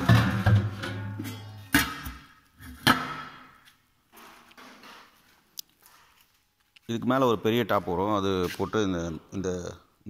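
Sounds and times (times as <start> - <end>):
metal container clanking on steel: 0.0 - 3.4.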